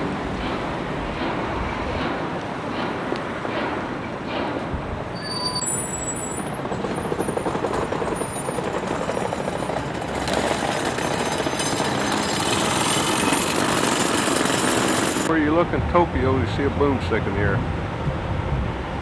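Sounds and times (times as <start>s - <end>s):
jackhammer hammering: 6.4s - 15.3s.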